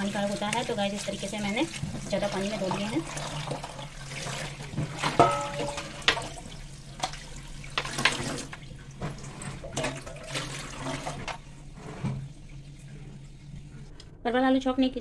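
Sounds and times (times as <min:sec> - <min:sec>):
tap water running into sink: 0:00.0 - 0:13.9
vegetables knocking in colander: 0:04.9 - 0:06.3.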